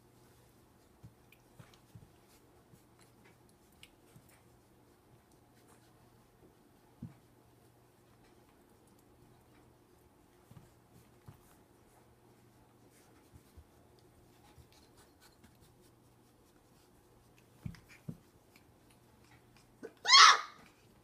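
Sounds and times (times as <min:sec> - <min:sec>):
puppy yelp: 0:19.8 - 0:20.7.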